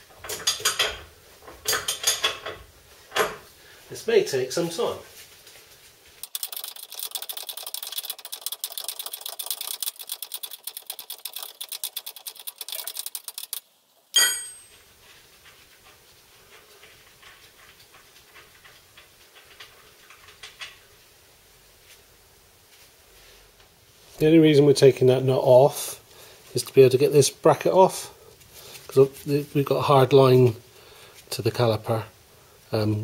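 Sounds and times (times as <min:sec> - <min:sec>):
socket ratchet clicking: 0:06.2 - 0:13.6
metal clank with ringing: 0:14.2 - 0:14.8.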